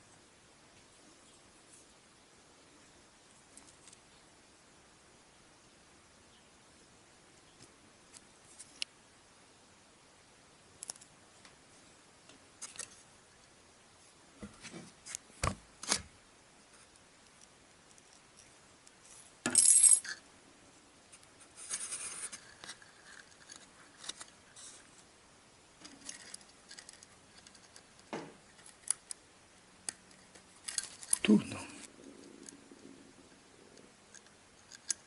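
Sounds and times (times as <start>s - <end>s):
fingers handling small parts: 10.8s - 11.1s, 25.8s - 29.2s, 29.8s - 32.6s.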